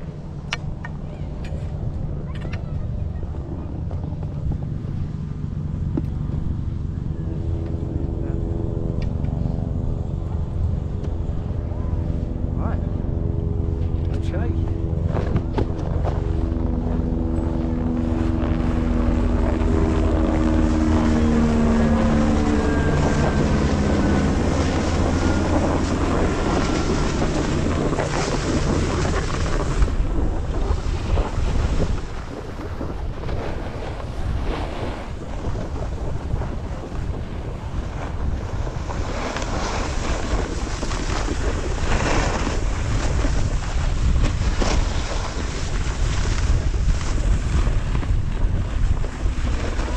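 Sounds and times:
low hum with steady tones: 0.0s - 49.9s
wind buffeting microphone: 0.0s - 49.9s
skis sliding over snow: 25.4s - 49.9s.

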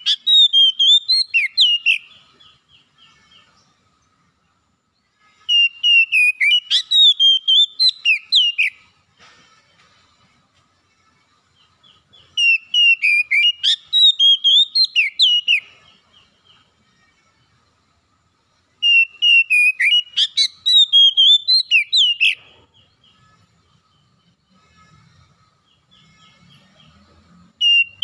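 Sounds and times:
bird singing whistled notes: 0.0s - 4.2s, 5.3s - 9.0s, 11.3s - 16.9s, 18.8s - 28.0s.

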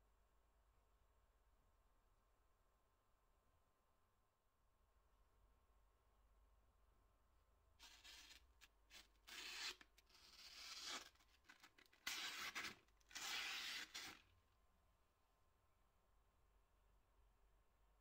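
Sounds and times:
knife slicing through paper: 7.8s - 14.2s.

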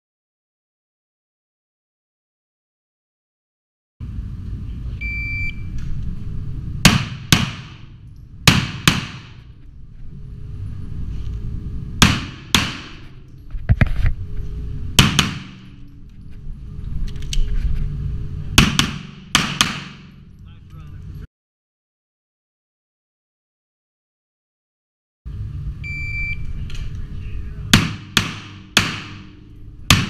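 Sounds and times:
shot timer beep: 5.0s - 5.7s, 25.8s - 26.4s
pistol shots ringing indoors: 6.8s - 9.5s, 12.0s - 13.4s, 15.0s - 15.9s, 18.6s - 20.2s, 27.8s - 30.0s.

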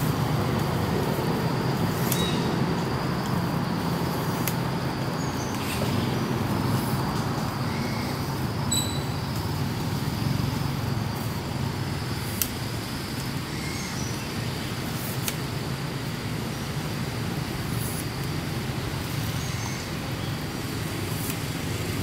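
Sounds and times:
high chirps: 6.6s - 9.9s.

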